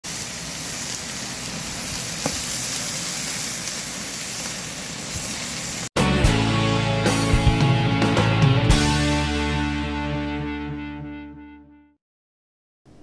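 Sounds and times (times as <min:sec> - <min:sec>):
steak sizzling on grill: 0:00.0 - 0:05.9
intro music: 0:06.0 - 0:11.8.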